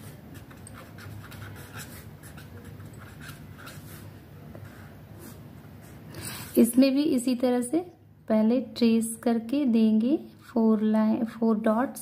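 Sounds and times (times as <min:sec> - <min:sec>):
pen scratching on paper: 0:00.0 - 0:05.4.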